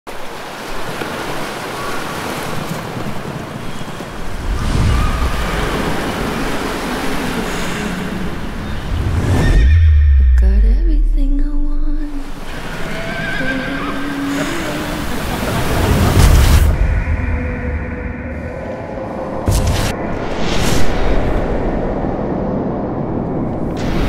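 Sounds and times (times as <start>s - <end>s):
ocean surf on beach: 0.1s - 9.2s, 12.1s - 24.0s
loud deep low drone: 16.2s - 20.3s.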